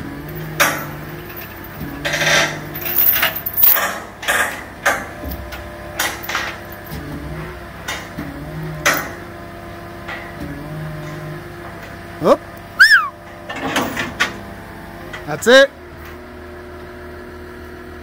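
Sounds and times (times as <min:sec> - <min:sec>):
low machine hum: 0:00.0 - 0:18.0
sharp metallic clanks: 0:00.4 - 0:05.4.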